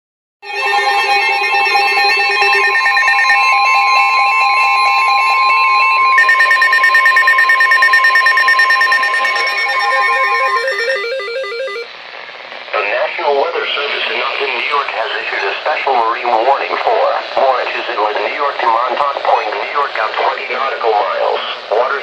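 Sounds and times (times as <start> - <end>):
electronic alarm beeps and warbles: 0.4 - 11.9
steady warning tone: 0.4 - 11.9.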